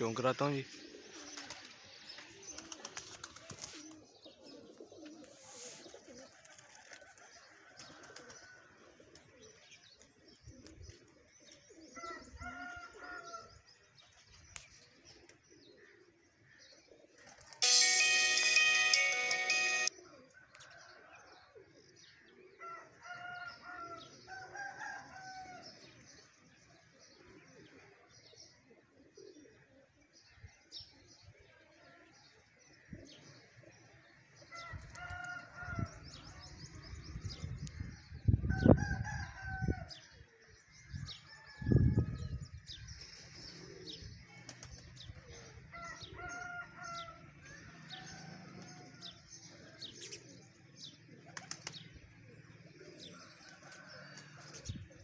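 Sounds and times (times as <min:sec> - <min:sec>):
rooster crowing: 0:45.7 - 0:49.3.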